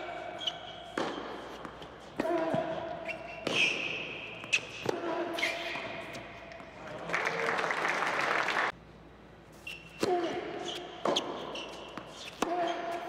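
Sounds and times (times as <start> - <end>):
ball bouncing on hard court: 0.4 - 6.8, 10.0 - 13.0
tennis ball racket hits: 0.4 - 6.8, 10.0 - 13.0
applause: 7.0 - 8.7.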